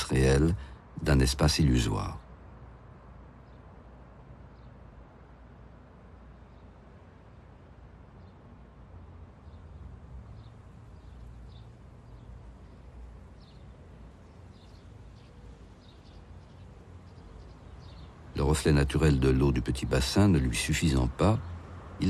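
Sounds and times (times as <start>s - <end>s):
faint bird chirps: 6.1s - 21.8s.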